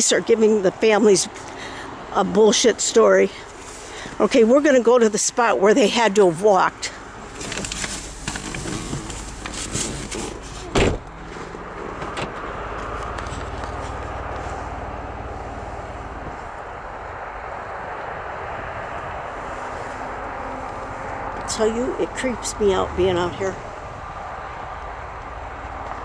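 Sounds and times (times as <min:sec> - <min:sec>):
car engine and road hum: 0:00.0 - 0:26.0
knocks and clunks in car: 0:07.4 - 0:11.2.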